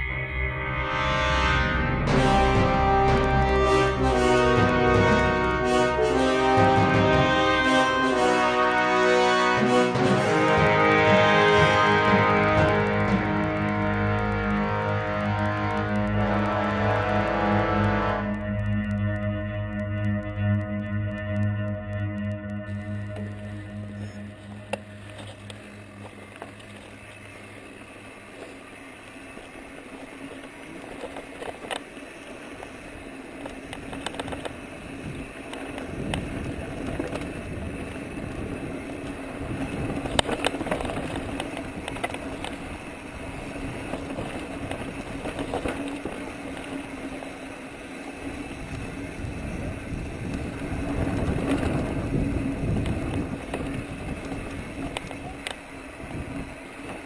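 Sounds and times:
bike clicking and rattling: 2.3s - 57.0s
tyre and wind noise: 32.5s - 47.6s, 48.2s - 57.0s.

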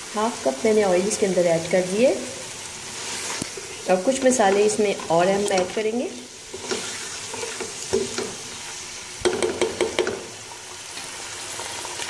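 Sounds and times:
chicken sizzling in hot oil: 0.0s - 12.0s
spoon scraping and knocking pan: 3.4s - 8.6s, 9.2s - 10.4s.

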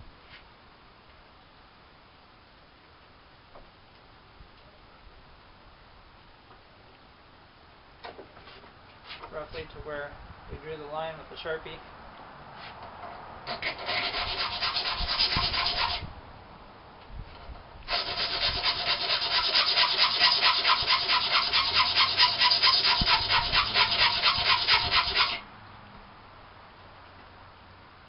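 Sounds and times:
hand file rasping on metal: 13.5s - 16.0s, 17.9s - 25.4s.

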